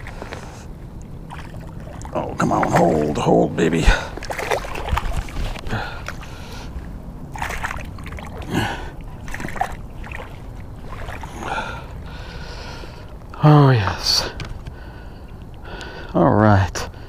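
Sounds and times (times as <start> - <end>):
fish splashing in water: 0.0 - 3.2, 3.9 - 12.1.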